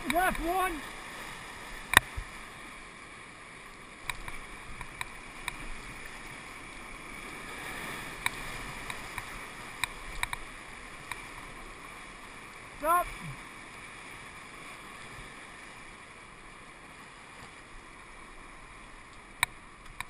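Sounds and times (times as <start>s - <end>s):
whitewater rapids rushing: 0.0s - 2.0s, 10.9s - 13.5s
faint clicks and taps: 8.2s - 11.2s.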